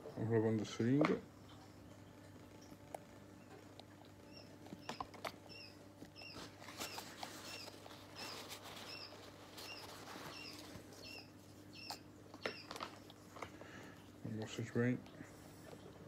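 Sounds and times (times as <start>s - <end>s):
parakeet chick begging chirps: 4.3s - 12.7s.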